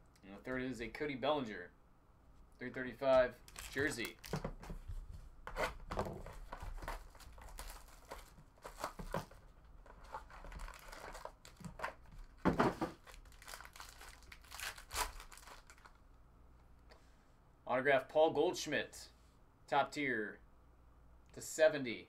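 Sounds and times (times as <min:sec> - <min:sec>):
plastic wrapping crinkling and tearing: 0:03.4 - 0:04.5, 0:06.2 - 0:16.0.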